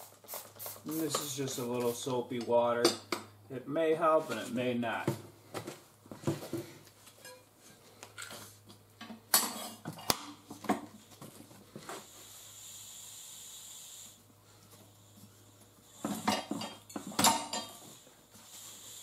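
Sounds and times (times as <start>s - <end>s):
steady hiss: 0.0s - 4.6s, 11.9s - 16.7s, 17.5s - 19.0s.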